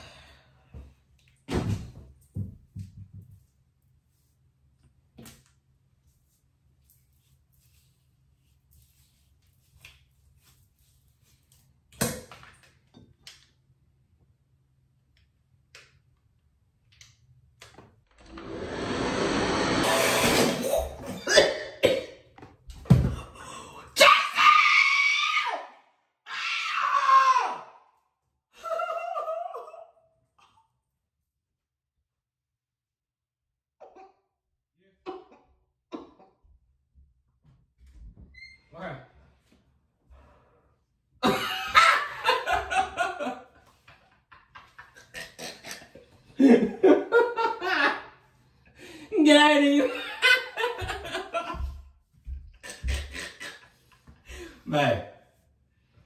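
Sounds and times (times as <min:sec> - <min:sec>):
towel rubbing hair: 0:06.1 - 0:11.8
woman screaming: 0:24.0 - 0:27.8.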